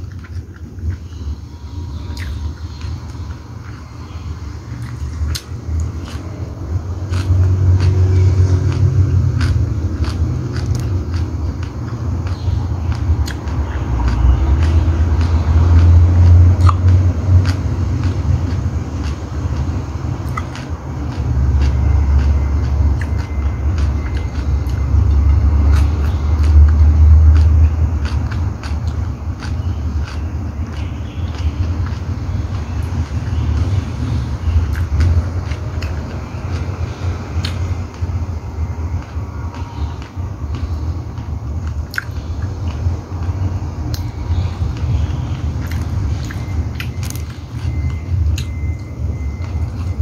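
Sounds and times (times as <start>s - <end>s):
person chewing food: 0.0s - 50.0s
person eating by hand: 0.0s - 50.0s
wet mouth clicks: 2.1s - 2.4s, 4.8s - 32.0s, 39.6s - 48.6s.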